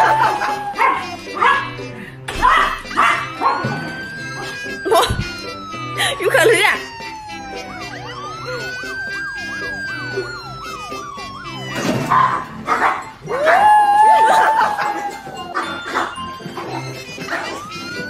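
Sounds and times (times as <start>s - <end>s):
small dog howling: 0.0s - 1.6s, 7.0s - 18.0s
siren wailing: 0.0s - 1.8s, 2.7s - 18.0s
background music: 0.0s - 18.0s.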